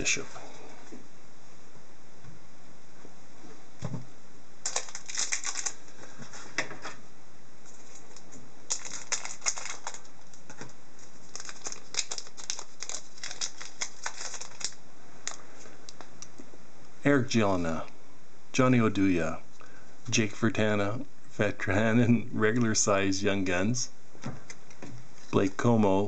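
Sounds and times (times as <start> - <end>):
foil wrapper crinkling and tearing: 4.6 - 5.9, 7.7 - 15.4.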